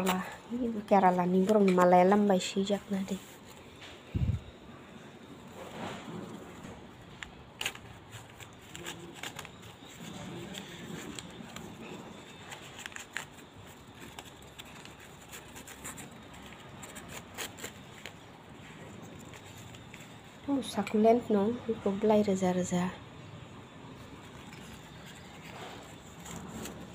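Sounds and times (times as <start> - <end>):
newspaper crumpling and rustling: 5.6 - 20.5, 24.0 - 26.9
sharp paper crackles: 7.1 - 20.4, 24.0 - 26.9.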